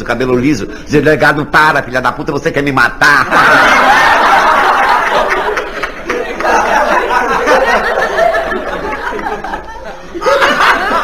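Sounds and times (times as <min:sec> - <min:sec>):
audience laughing: 0:03.2 - 0:11.0.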